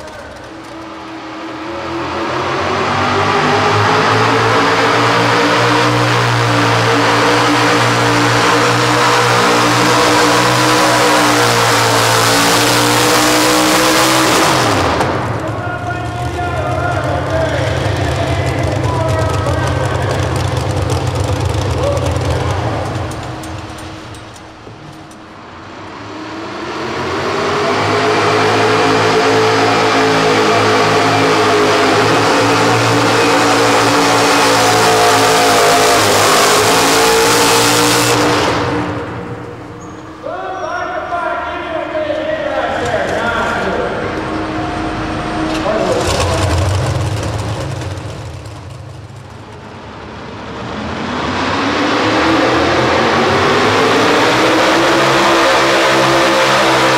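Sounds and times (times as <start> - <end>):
tractor engine at full throttle: 0.0 - 40.4, 41.2 - 56.9.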